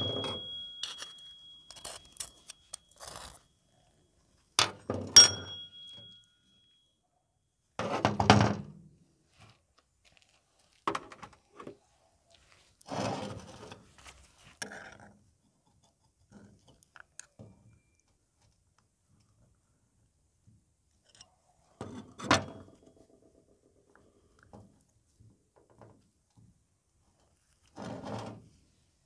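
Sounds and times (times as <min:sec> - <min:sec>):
sharp metallic knocks: 0:00.0 - 0:01.1
metal parts scraping and handling: 0:00.0 - 0:03.4.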